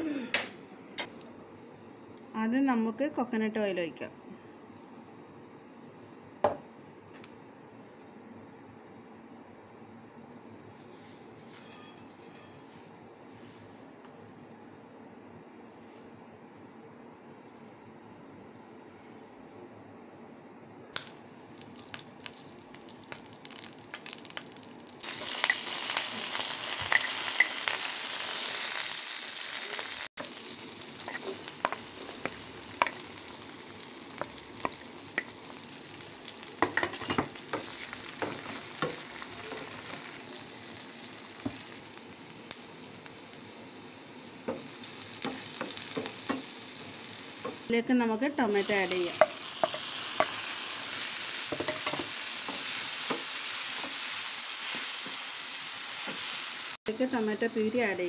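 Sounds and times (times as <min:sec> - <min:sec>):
seeds popping in hot oil: 0:20.9 - 0:29.0, 0:30.2 - 0:47.7, 0:48.6 - 0:55.2
loud sizzle of frying: 0:21.0 - 0:58.0.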